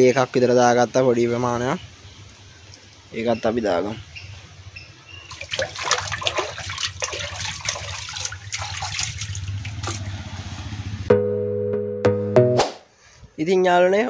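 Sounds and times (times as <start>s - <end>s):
water splashing in a fish tank: 5.3s - 10.6s.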